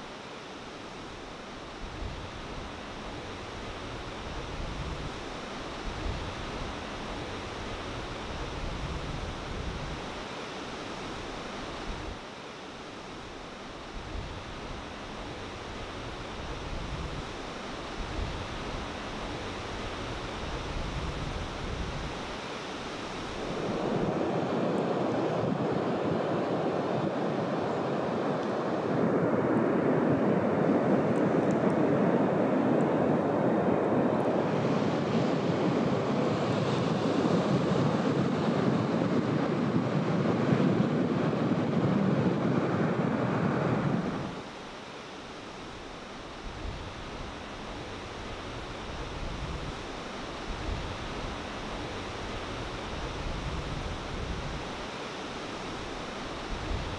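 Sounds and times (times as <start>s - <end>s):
wind buffeting microphone: 1.7s - 10.2s, 13.8s - 22.3s, 46.4s - 54.8s.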